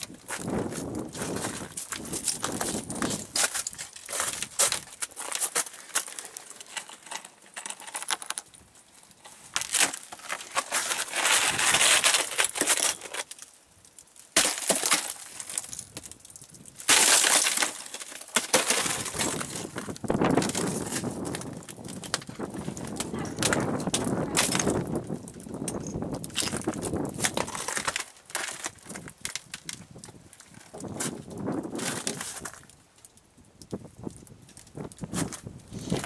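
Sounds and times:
ice crackling and clinking: 0:00.0 - 0:36.0
snow shovel scraping ice: 0:09.6 - 0:13.2.

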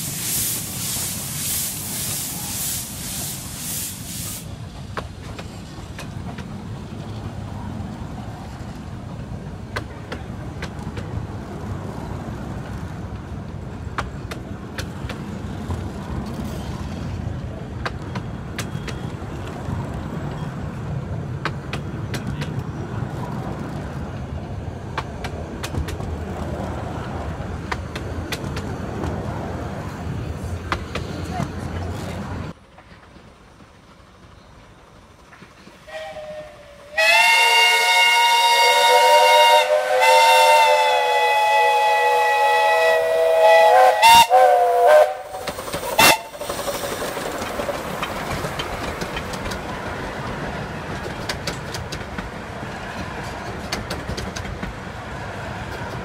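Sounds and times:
steam locomotive exhaust hissing: 0:00.0 - 0:06.0, 0:35.6 - 0:49.7
wheels clicking on track: 0:02.3 - 0:36.4, 0:45.0 - 0:56.0.

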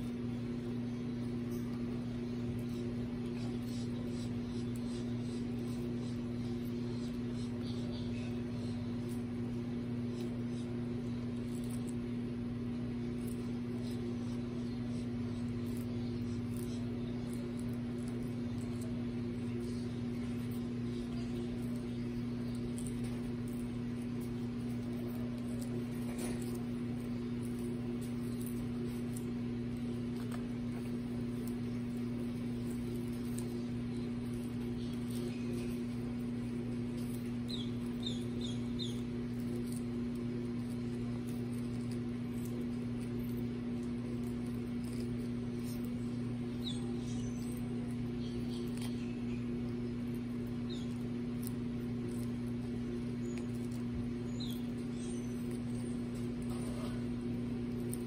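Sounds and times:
low mechanical hum: 0:00.0 - 0:58.0
tortoises crunching lettuce: 0:00.0 - 0:58.0.

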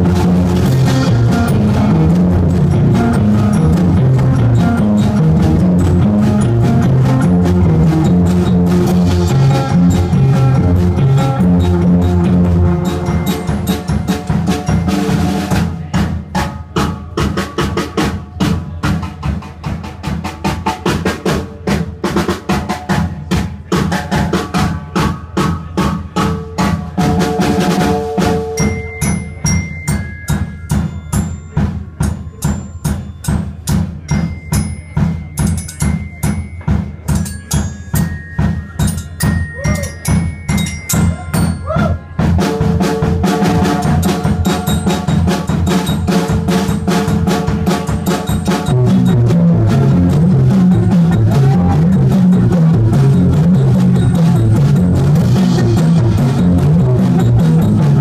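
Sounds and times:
drum kit beat: 0:00.0 - 0:58.0
thin high held tones: 0:09.0 - 0:15.5, 0:27.9 - 0:49.0.

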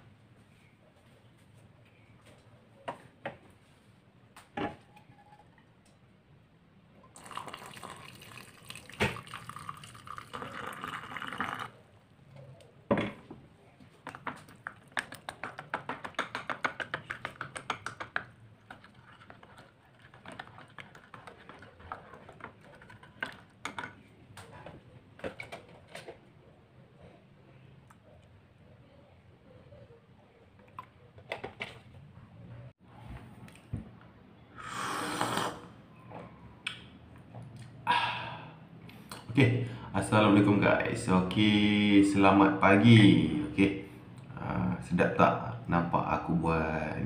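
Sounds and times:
liquid poured into a mug: 0:07.1 - 0:11.8.

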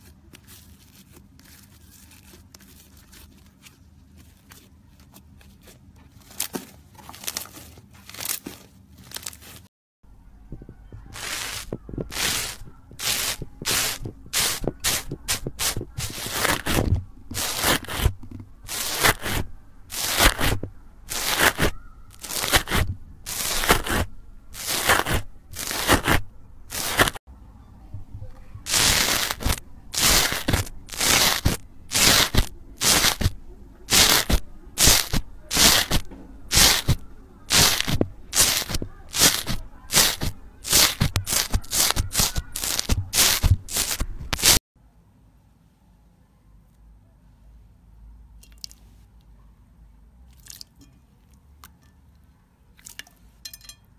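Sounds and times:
slime squelching crunch: 0:11.0 - 0:27.2, 0:28.7 - 0:44.6.

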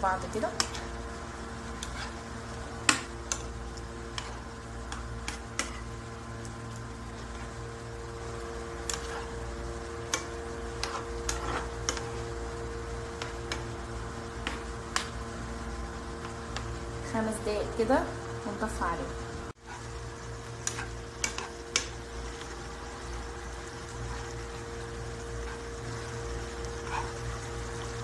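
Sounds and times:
sauce simmering: 0:00.5 - 0:17.0, 0:19.6 - 0:28.0.

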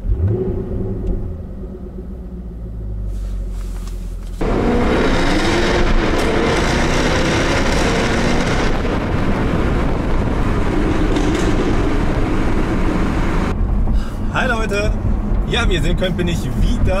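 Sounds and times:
car engine and exhaust: 0:00.0 - 0:17.0
road rumble: 0:00.0 - 0:17.0.

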